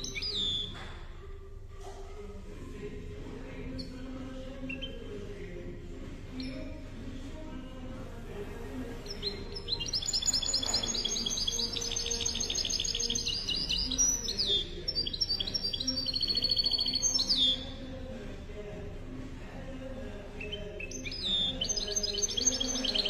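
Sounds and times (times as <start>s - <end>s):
bird twittering song: 0.0s - 1.1s, 3.6s - 5.1s, 6.3s - 6.8s, 8.9s - 17.9s, 20.4s - 23.0s.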